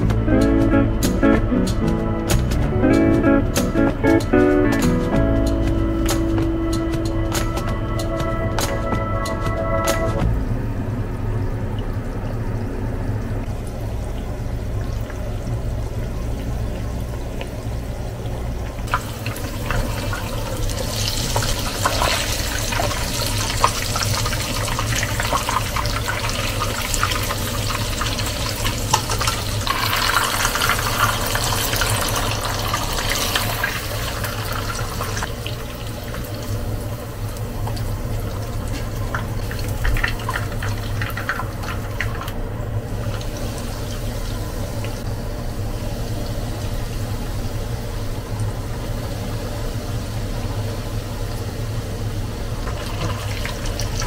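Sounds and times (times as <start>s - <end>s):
steady low hum: 0.0s - 54.0s
water running from a tap: 11.6s - 54.0s.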